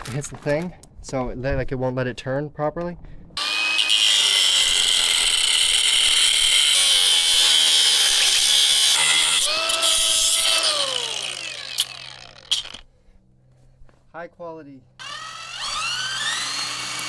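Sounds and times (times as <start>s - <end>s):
angle grinder grinding metal: 3.4s - 12.8s, 15.0s - 17.0s
grinder disc spinning down: 9.0s - 12.8s, 15.0s - 17.0s.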